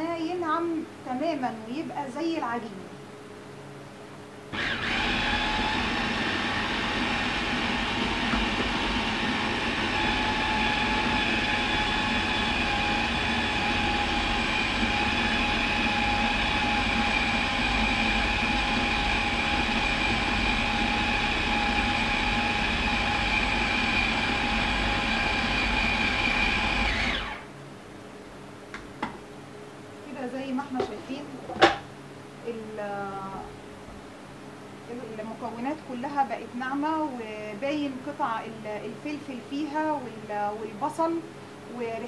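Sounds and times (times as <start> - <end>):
food processor motor whine: 4.5 - 27.5.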